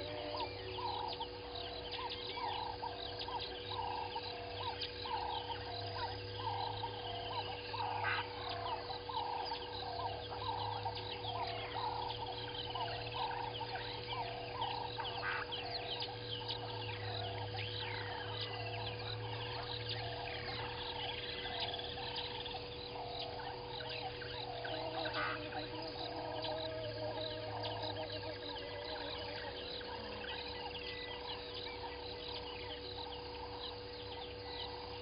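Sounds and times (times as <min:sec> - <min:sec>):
low hum: 0:00.0 - 0:35.0
small birds chirping and whistling: 0:00.0 - 0:35.0
bird clucking: 0:07.3 - 0:16.2, 0:19.3 - 0:33.2.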